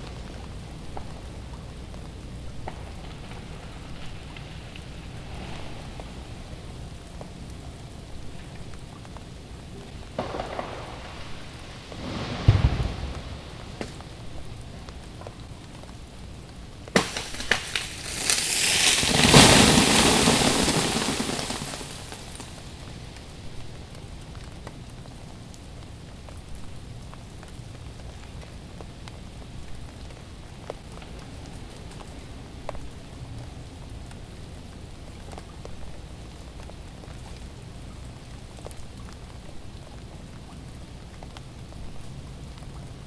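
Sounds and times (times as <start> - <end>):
freezing rain pattering: 0.0 - 43.0
icy branches cracking: 16.8 - 23.2
limb crashing through branches: 16.9 - 22.5.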